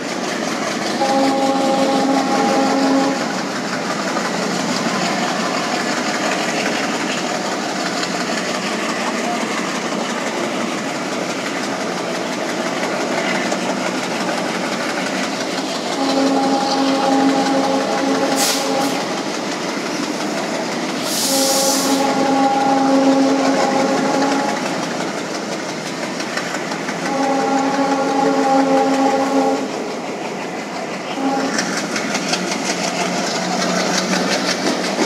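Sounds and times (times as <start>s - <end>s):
train coaches rumbling on track: 0.0s - 35.0s
locomotive air horn blasts: 0.9s - 3.5s, 15.9s - 19.1s, 21.0s - 24.8s, 27.0s - 29.8s, 31.1s - 31.8s
brief hiss: 18.4s - 19.0s, 21.0s - 22.0s.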